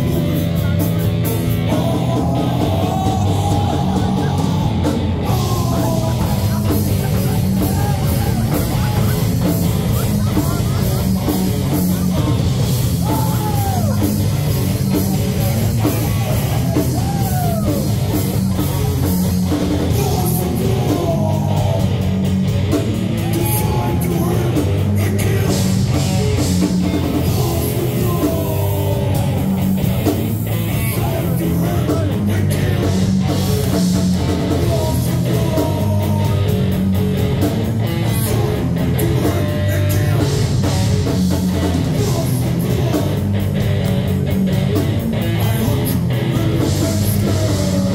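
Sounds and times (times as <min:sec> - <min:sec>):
vocalist singing: 0:00.0 - 0:36.9, 0:37.8 - 0:47.9
heavy metal band playing: 0:00.0 - 0:47.9.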